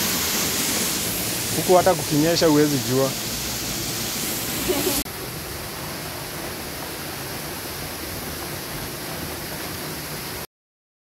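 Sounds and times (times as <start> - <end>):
steady rushing noise: 0.0 - 5.7.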